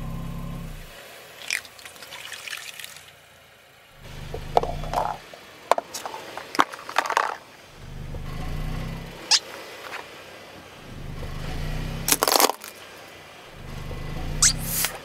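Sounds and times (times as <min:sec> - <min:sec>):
squeaky toy squealing: 0:09.2 - 0:09.5, 0:14.3 - 0:15.0
hard plastic cracking: 0:12.1 - 0:12.8.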